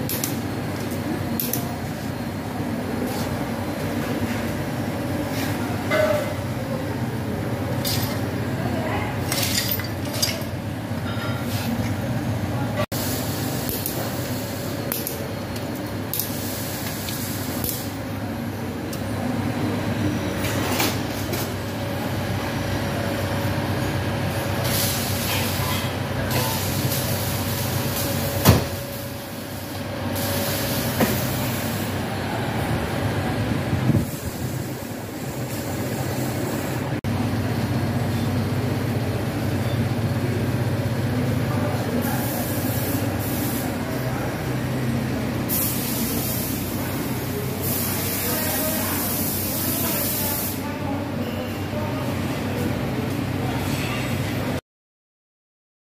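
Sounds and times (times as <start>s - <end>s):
low mechanical hum: 0.0s - 54.6s.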